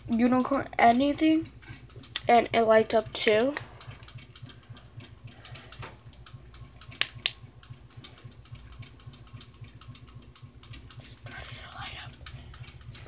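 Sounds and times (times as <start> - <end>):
low hum: 0.0 - 13.0
sharp clicks: 3.0 - 13.0.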